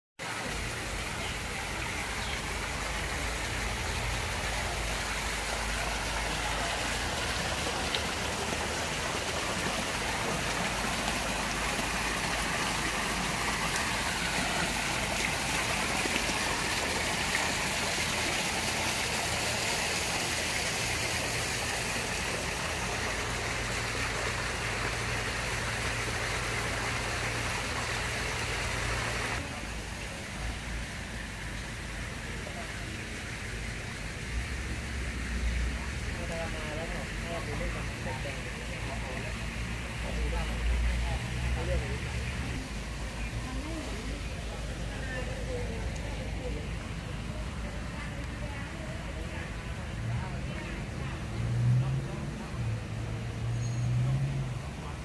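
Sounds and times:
water splashing into pond: 0.2 - 55.0.

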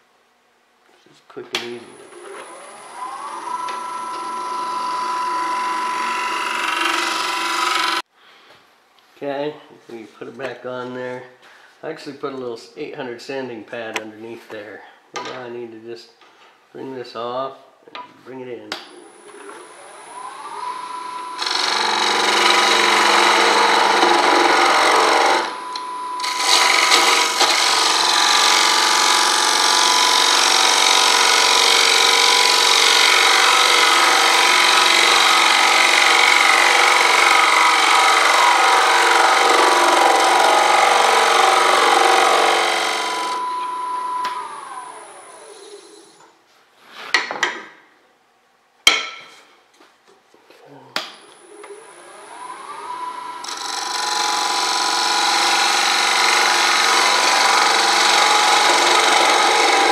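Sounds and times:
lathe motor whine: 1.9 - 8.0, 19.0 - 46.1, 51.4 - 59.9.

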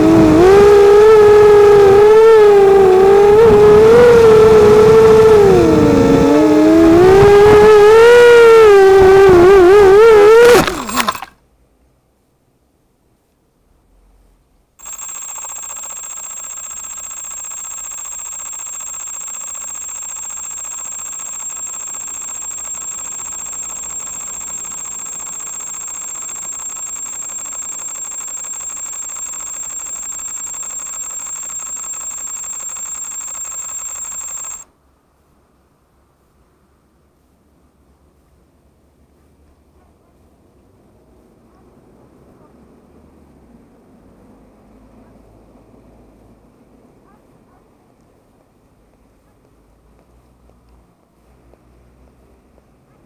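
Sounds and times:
high-pitched electronic whine: 0.0 - 11.3, 14.8 - 34.7
quadcopter motors revving: 0.0 - 11.3, 14.8 - 34.7.

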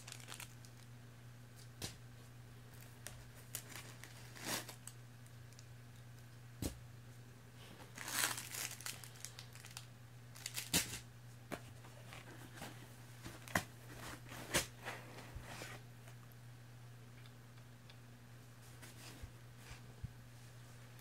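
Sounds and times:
packaging crinkling and rustling: 0.0 - 0.9, 2.8 - 5.6, 7.9 - 11.0.

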